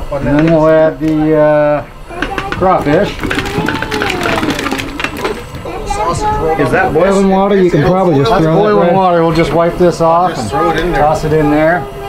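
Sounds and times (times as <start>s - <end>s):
food clattering into a pot: 2.2s - 5.7s.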